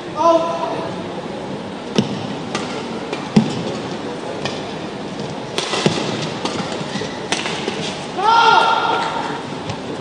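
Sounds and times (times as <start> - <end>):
arena background noise: 0.0 - 10.0
rackets striking shuttlecock: 1.9 - 3.8, 4.4 - 8.0.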